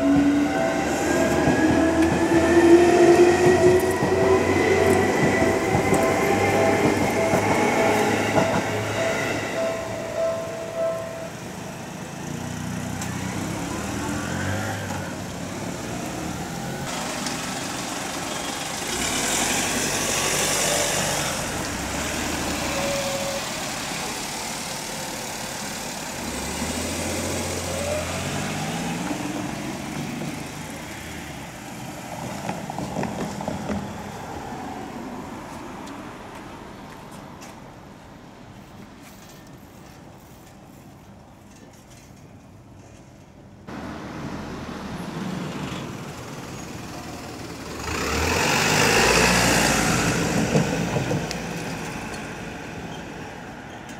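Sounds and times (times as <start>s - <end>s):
vehicles passing: 0.0s - 53.9s
passing vehicle hiss: 6.2s - 36.8s, 43.7s - 53.7s.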